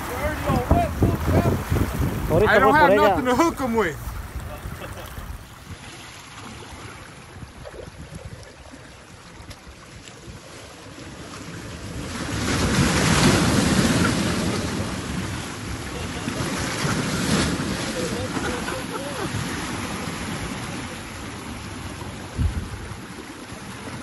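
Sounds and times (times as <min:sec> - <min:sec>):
wind on microphone: 0:00.0 - 0:03.3, 0:04.0 - 0:06.0, 0:07.1 - 0:08.8, 0:11.5 - 0:23.2
surf washing over rocks: 0:00.0 - 0:24.0.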